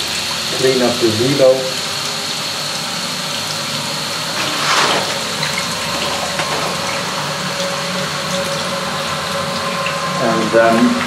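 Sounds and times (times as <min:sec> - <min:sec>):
water running into washing machine: 0:00.0 - 0:11.0.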